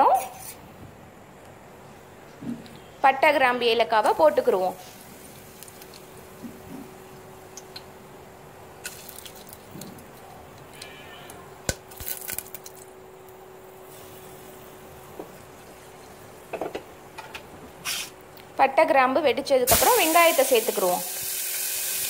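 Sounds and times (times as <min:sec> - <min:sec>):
faint steady hum: 0:00.0 - 0:22.0
spices clicking into hot oil: 0:05.3 - 0:06.2, 0:07.5 - 0:07.9.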